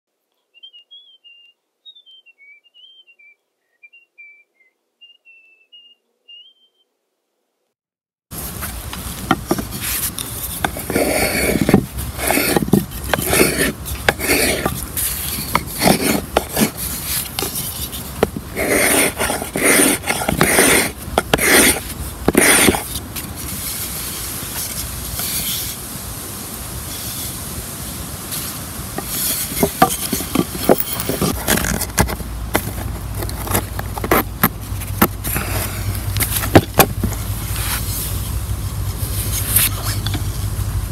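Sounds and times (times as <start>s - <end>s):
bird chirping: 0.3s - 6.9s
knife scraping wood: 8.5s - 25.8s, 29.0s - 38.3s, 39.1s - 40.3s.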